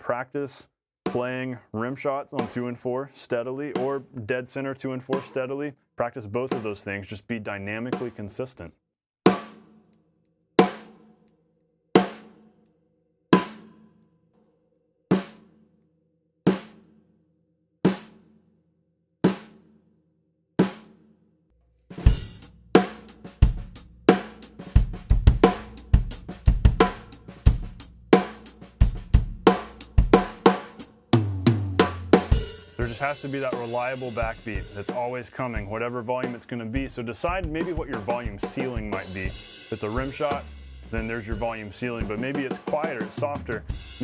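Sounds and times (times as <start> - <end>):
drum kit groove: 1.1 - 5.6, 6.4 - 7.0, 7.8 - 8.6, 9.3 - 9.7, 21.9 - 44.0
muffled snare drum strokes: 21.9 - 44.0.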